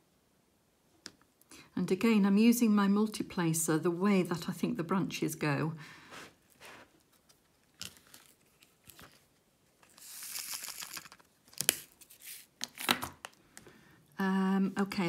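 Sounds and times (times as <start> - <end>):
plastic beads rattling in tray: 9.8 - 11.9.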